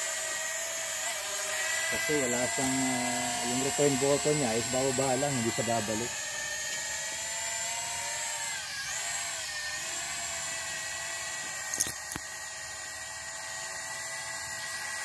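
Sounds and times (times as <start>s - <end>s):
toy drone motors whining: 0.0s - 15.0s
sharp clicks: 11.7s - 12.3s.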